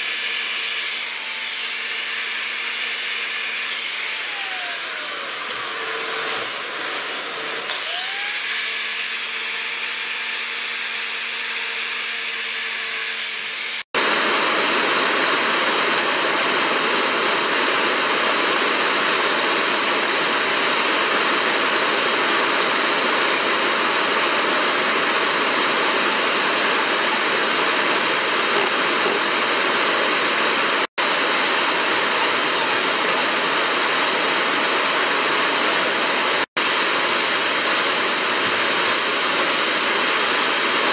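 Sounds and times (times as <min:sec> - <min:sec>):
electric drill whirring: 0:00.0 - 0:14.3.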